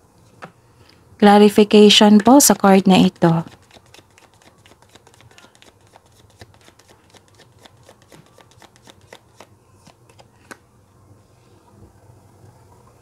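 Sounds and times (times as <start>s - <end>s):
cards being shuffled: 3.0s - 10.6s.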